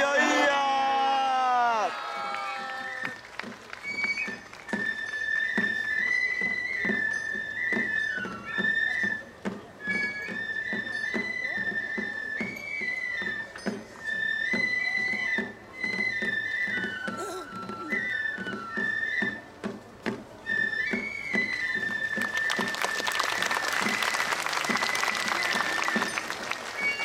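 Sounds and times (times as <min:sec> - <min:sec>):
high-pitched flute melody: 0:03.8 - 0:19.5, 0:20.4 - 0:27.0.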